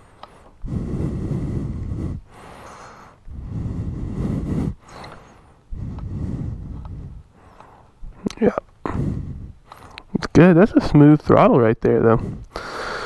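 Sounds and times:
breathing into microphone: 0:00.0 - 0:08.2, 0:08.8 - 0:10.1, 0:12.2 - 0:13.0.

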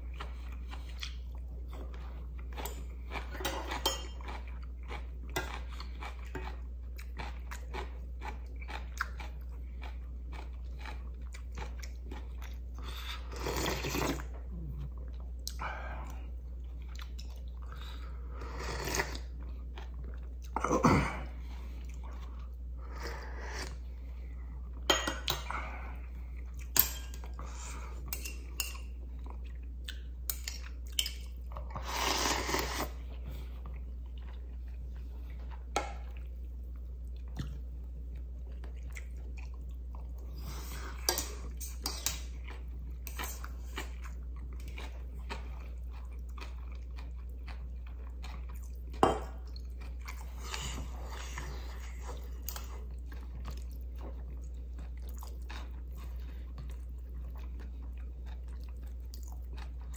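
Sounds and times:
chewing: 0:00.0 - 0:20.8, 0:32.4 - 0:59.9
utensils clinking on metal pot: 0:03.4 - 0:04.2
slurping noodles: 0:12.9 - 0:14.3, 0:31.8 - 0:33.0.

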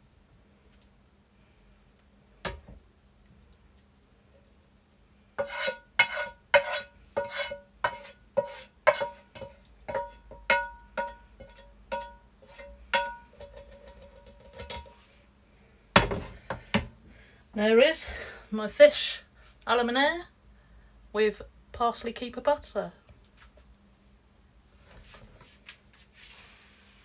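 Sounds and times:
utensil tapping ceramic plate: 0:08.9 - 0:12.2, 0:12.9 - 0:14.9.

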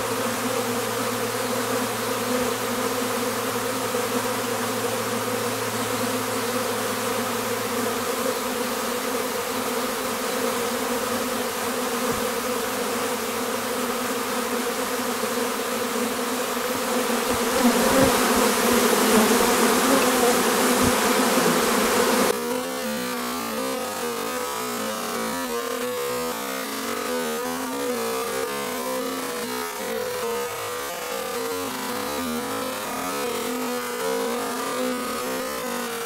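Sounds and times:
honeybees buzzing: 0:00.0 - 0:36.0.

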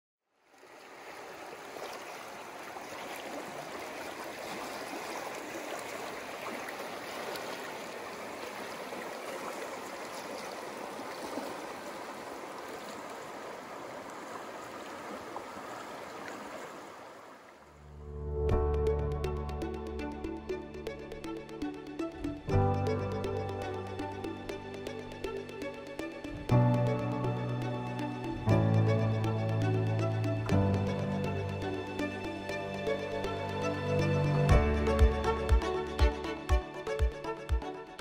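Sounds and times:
creek running over rocks: 0:00.4 - 0:17.8, 0:22.0 - 0:37.4
music with sustained tones: 0:17.8 - 0:38.0.

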